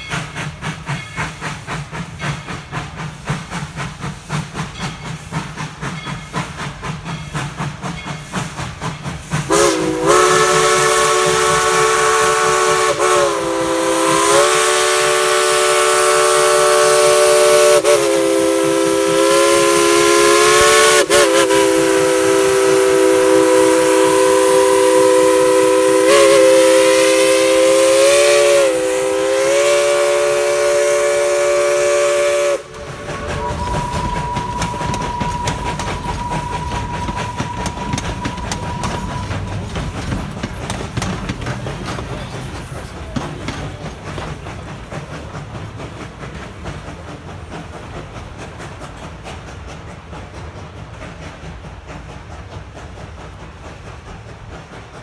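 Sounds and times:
steam locomotive exhaust chuffs: 0.0 - 55.0
steam whistle chord: 9.5 - 39.6.

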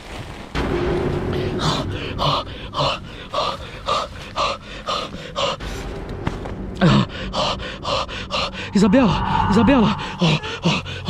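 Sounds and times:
woman moaning: 8.6 - 11.0.

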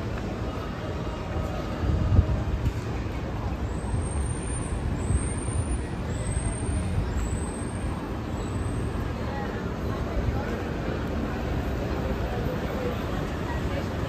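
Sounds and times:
low rumble of road traffic: 0.0 - 14.0.

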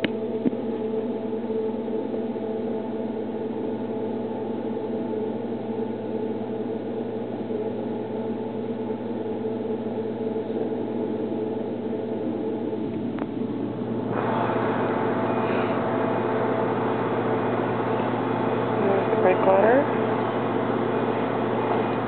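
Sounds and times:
ship machinery hum: 0.0 - 22.0
steady tones: 12.2 - 22.0.

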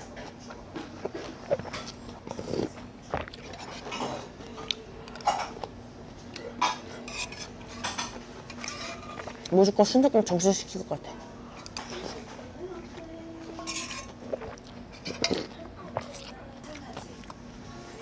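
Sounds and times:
chewing: 0.7 - 6.5, 11.6 - 17.9
slurping soup: 1.0 - 4.3.

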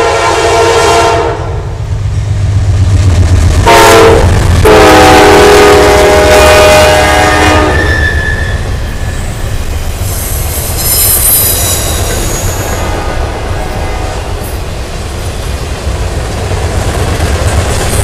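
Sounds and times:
locomotive horn: 0.0 - 1.7, 3.6 - 8.6, 12.7 - 14.5
freight train cars rumbling: 0.0 - 18.0
steel wheel squeal: 7.7 - 13.1.

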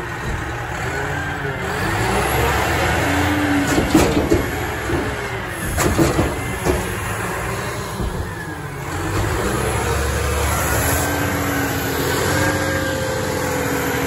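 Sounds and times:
truck engine running: 0.0 - 14.0
metal clanks and knocks: 3.5 - 9.4.

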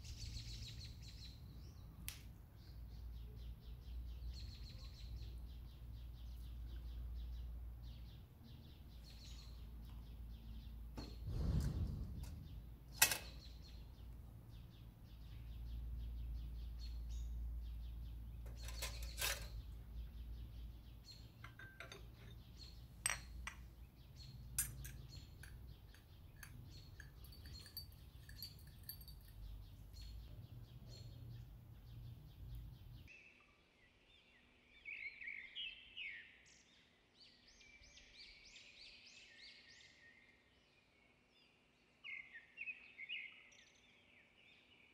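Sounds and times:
small birds chirping: 0.0 - 44.9
glasses and teaspoon clinking: 21.4 - 23.7, 24.4 - 29.6.

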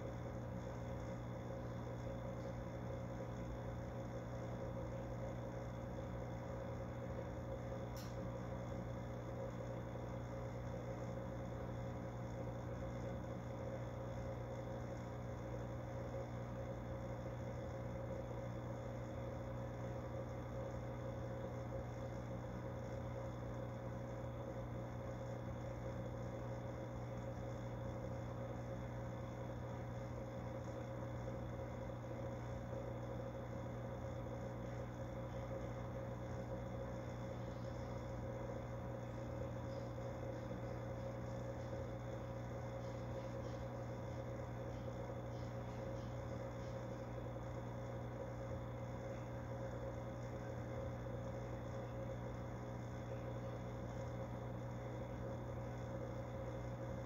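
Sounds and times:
aquarium equipment humming: 0.0 - 57.0.

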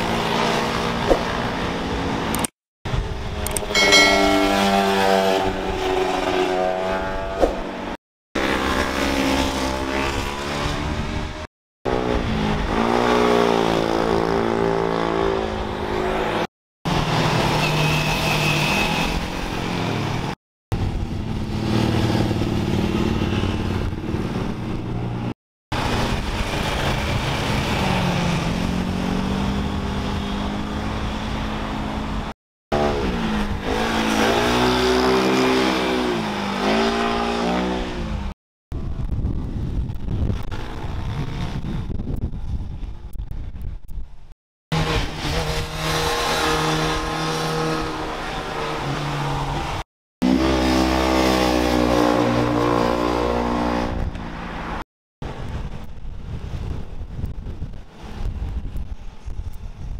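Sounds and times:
motorcycle engine revving: 4.1 - 18.3, 21.2 - 38.4, 44.7 - 49.3, 50.2 - 54.3
car engines revving: 4.6 - 38.4, 44.7 - 54.8.

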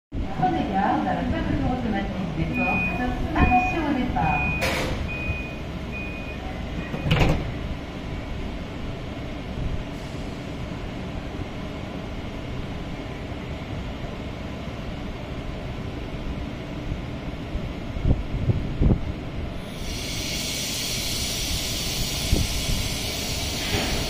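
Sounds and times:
train low rumble: 0.1 - 24.0
door warning beeper: 2.5 - 7.3
sliding door shutting with thud: 6.9 - 7.5.

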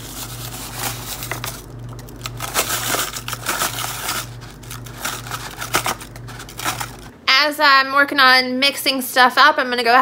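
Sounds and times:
paper bag crinkling: 0.0 - 7.1.

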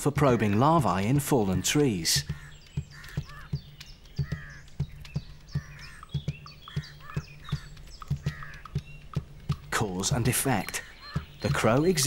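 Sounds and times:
bird calls and chirps: 0.0 - 12.0
bird pecking at wood: 1.6 - 9.8, 10.6 - 12.0.

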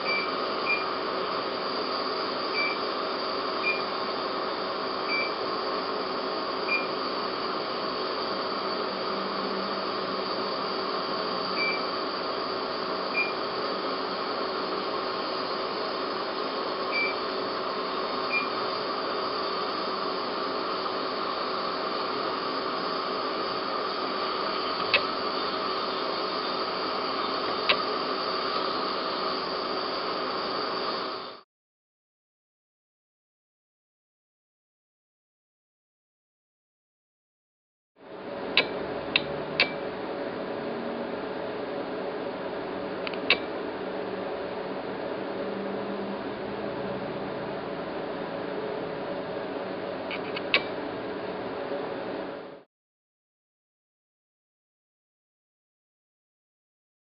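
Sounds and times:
equipment hiss: 0.0 - 31.4
sharp clicks: 38.6 - 39.8, 43.1 - 43.5.

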